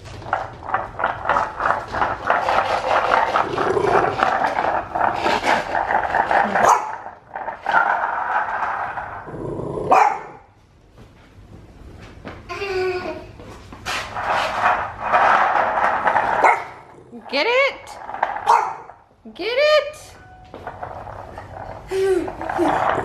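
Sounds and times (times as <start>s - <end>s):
puppy growling: 0.2s - 10.0s, 14.7s - 19.0s, 20.7s - 23.0s.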